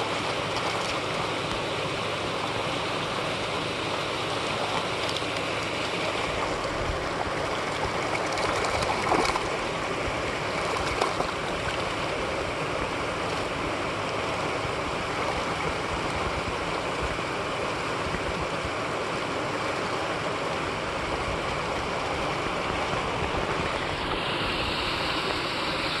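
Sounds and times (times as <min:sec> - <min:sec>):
louder water splashes: 0:00.0 - 0:16.6
water rushing down spillway: 0:00.0 - 0:26.0.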